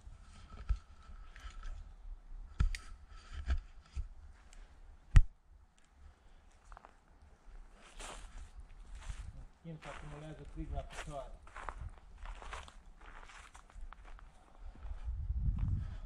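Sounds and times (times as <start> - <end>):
low rumble: 14.8 - 16.0.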